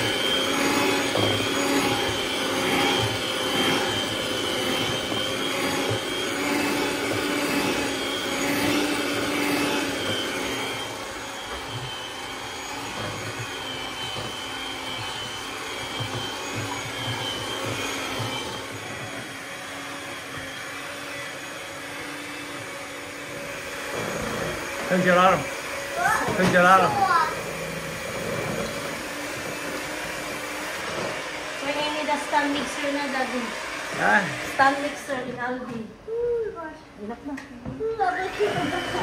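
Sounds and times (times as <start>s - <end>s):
electric hand mixer whisking: 0.0s - 39.0s.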